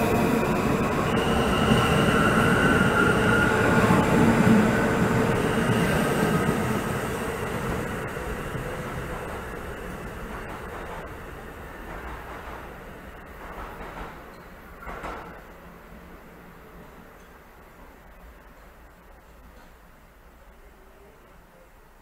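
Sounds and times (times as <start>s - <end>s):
subway train wheels rumbling: 0.0s - 22.0s.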